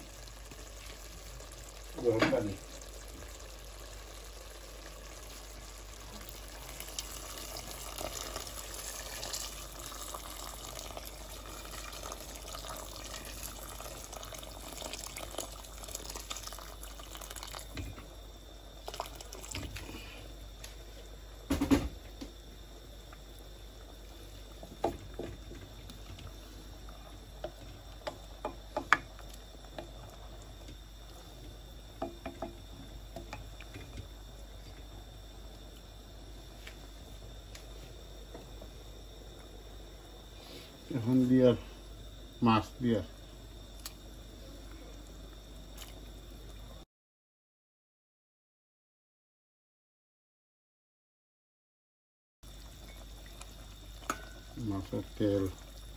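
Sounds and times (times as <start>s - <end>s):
water pouring into a pot: 0.0s - 18.1s, 18.8s - 20.2s, 52.6s - 55.9s
wooden spoon stirring a pot: 24.5s - 31.1s.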